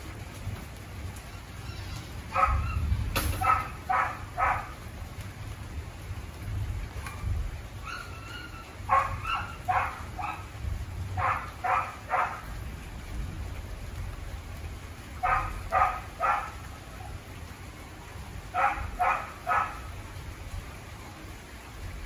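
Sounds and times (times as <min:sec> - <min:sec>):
heavy rain: 0:00.0 - 0:22.0
dogs barking: 0:02.3 - 0:04.9, 0:07.8 - 0:12.6, 0:15.2 - 0:17.0, 0:18.5 - 0:20.0.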